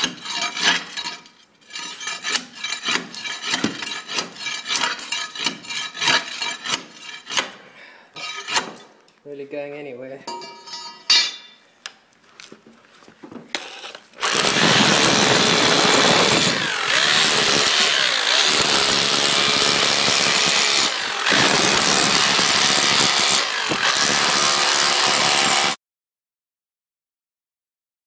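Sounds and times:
hammer drill chiselling: 13.6 - 25.8.

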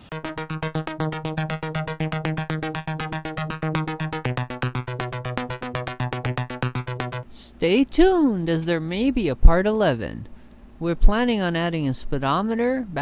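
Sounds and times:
bass note: 0.0 - 7.2
synthesizer fast repeated notes: 0.0 - 7.3.

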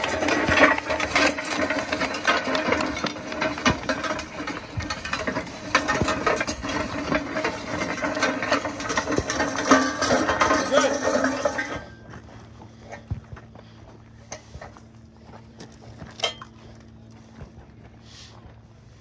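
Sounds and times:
metal sled scraping over gravel: 0.0 - 13.1.

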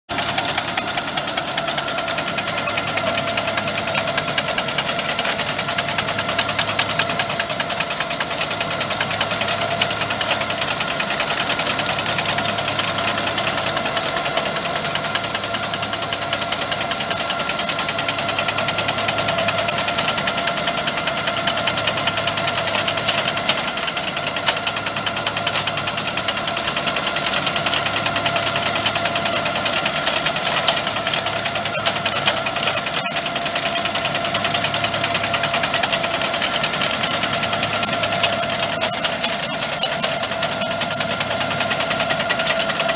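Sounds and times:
tractor engine running: 0.1 - 42.9
shear blades chattering: 25.2 - 42.9.

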